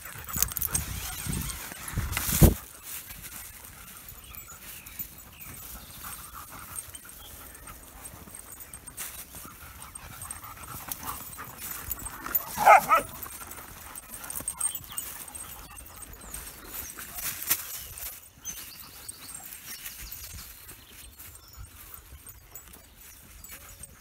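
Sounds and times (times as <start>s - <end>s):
dogs panting: 0.0s - 24.0s
dog yelping bark: 12.4s - 13.2s.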